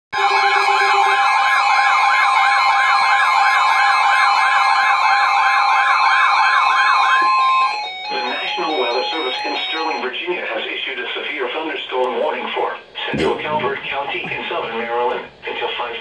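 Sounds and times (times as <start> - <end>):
steady high alarm tone: 0.1 - 10.2
warbling siren alarm: 0.2 - 10.1.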